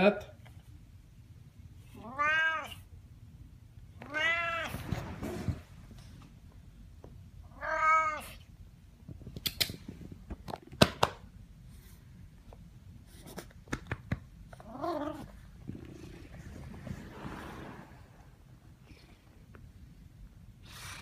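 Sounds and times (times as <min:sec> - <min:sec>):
cat meowing loudly: 0:02.0 - 0:02.8, 0:04.0 - 0:04.8, 0:07.5 - 0:08.4.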